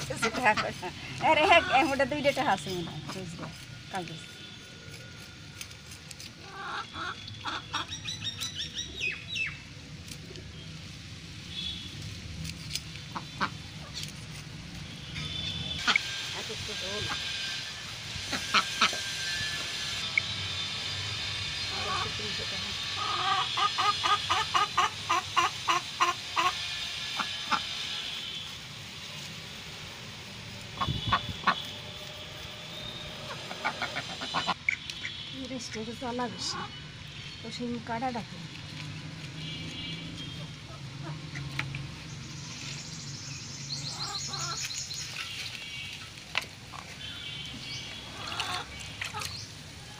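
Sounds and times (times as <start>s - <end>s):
ducks quacking: 0.0s - 2.1s, 6.4s - 8.0s, 13.1s - 14.0s, 15.3s - 17.4s, 18.2s - 19.0s, 22.9s - 28.1s, 30.8s - 31.8s, 33.2s - 36.8s
bird chirping: 6.7s - 9.7s, 41.2s - 46.1s, 47.0s - 49.7s.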